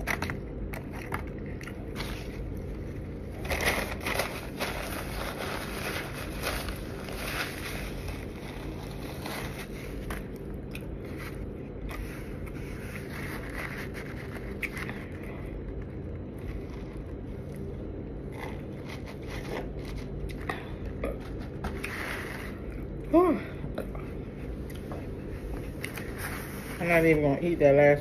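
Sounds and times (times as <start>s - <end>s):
low room hum: 0.0s - 28.0s
paper napkin rustling: 1.8s - 10.4s, 11.0s - 15.3s, 25.2s - 28.0s
person chewing: 5.7s - 23.1s, 23.7s - 26.1s.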